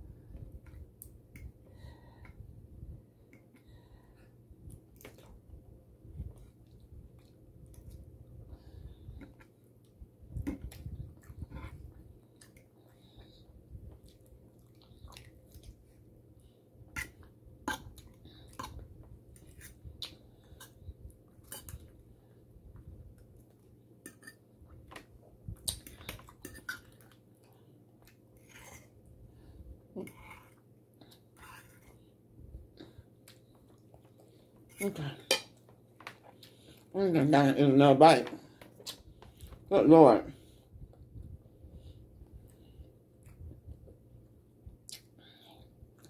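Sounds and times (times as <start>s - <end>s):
chewing: 13.9s - 15.9s.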